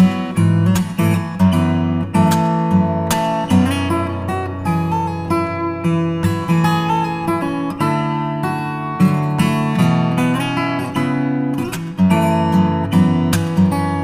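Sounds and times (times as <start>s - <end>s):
acoustic guitar strummed chords: 0.0s - 14.0s.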